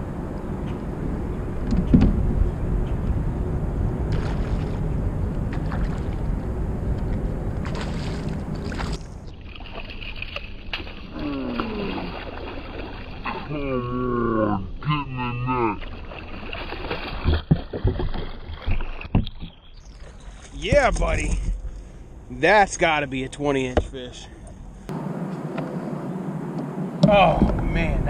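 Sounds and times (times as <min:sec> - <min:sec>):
wind rumble on microphone: 0:00.0 - 0:09.4, 0:24.4 - 0:28.0
fish splashing in water: 0:04.1 - 0:04.9, 0:05.5 - 0:06.4, 0:07.0 - 0:13.4, 0:15.7 - 0:19.1
man exclaiming: 0:13.3 - 0:15.8.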